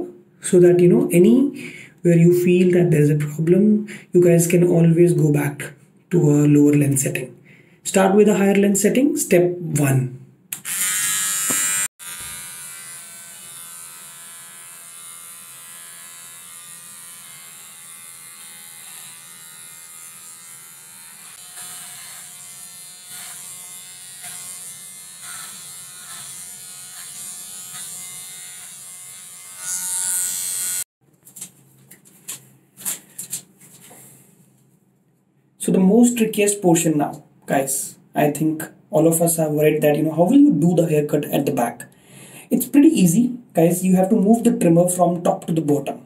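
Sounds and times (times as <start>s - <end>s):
electric hair trimmer buzzing: 10.5s - 30.9s
hair cutting strokes: 10.5s - 31.5s.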